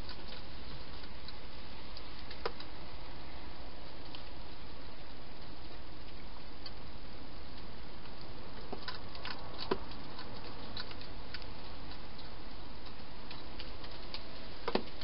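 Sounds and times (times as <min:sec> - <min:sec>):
hedgehog chewing clicks: 0:07.5 - 0:15.0.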